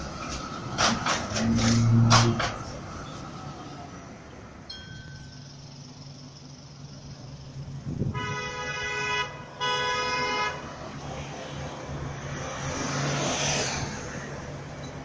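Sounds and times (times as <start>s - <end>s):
traffic noise: 0.0s - 15.0s
vehicle horn blasts: 8.0s - 10.6s.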